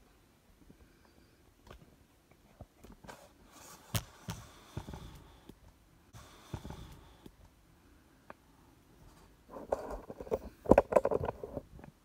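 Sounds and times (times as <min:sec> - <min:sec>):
camera handling knocks and rubbing: 0:03.8 - 0:05.3, 0:06.2 - 0:07.0.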